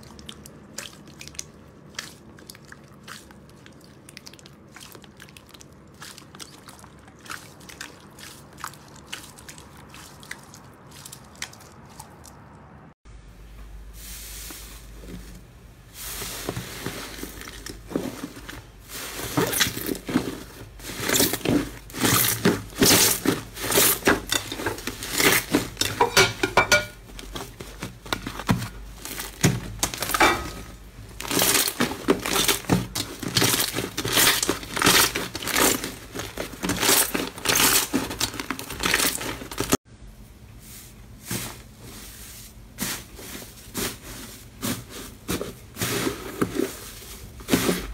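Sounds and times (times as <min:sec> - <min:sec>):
slime crackling and popping: 0:31.2 - 0:39.8.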